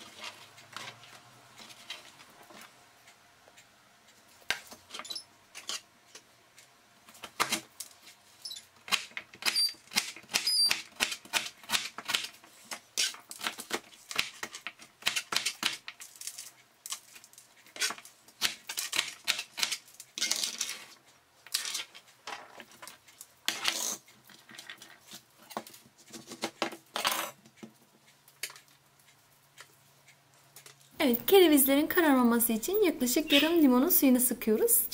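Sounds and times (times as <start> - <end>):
knife scraping board: 13.0 - 13.6, 23.5 - 24.0.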